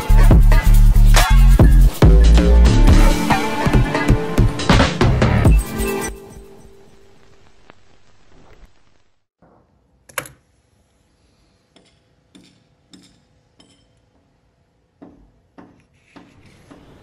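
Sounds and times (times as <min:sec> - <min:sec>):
music: 0:00.0 - 0:07.2.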